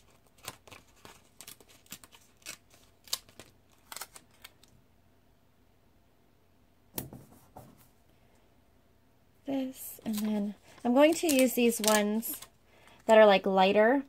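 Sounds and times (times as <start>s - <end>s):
paper rustle: 0.0s - 4.7s, 10.0s - 13.0s
paper stickers crinkling: 0.0s - 4.8s, 9.9s - 13.1s.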